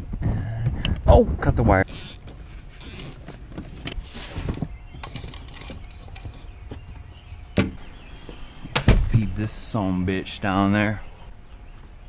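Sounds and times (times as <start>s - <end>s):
plastic hose knocking and rustling: 2.2s - 7.0s.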